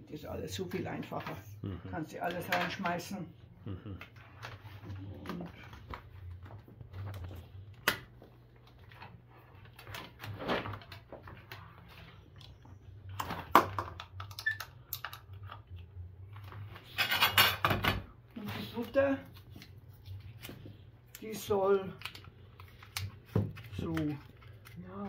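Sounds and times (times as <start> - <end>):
cord and plug rustling: 4.1 - 13.3.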